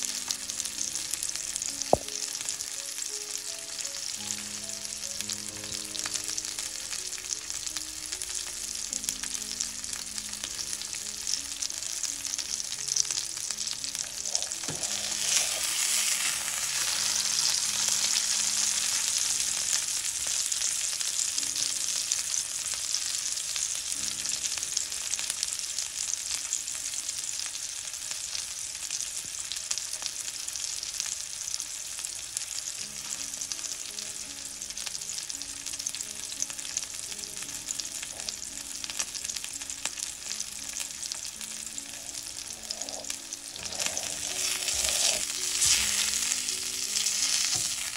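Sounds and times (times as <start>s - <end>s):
steak sizzling in a frying pan: 0.0s - 47.9s.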